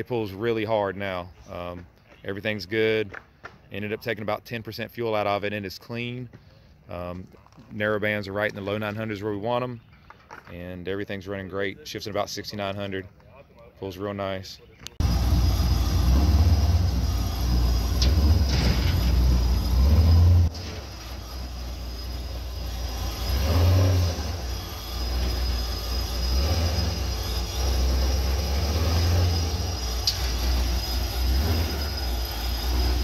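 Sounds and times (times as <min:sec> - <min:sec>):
car engine deep rumble: 0:14.6 - 0:33.0.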